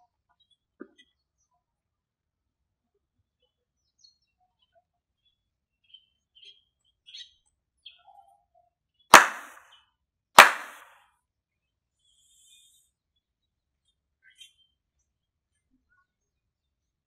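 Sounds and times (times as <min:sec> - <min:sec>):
faint bird chirps: 0:03.4 - 0:09.1, 0:12.0 - 0:16.7
sharp hand claps: 0:09.1 - 0:09.6, 0:10.4 - 0:10.9.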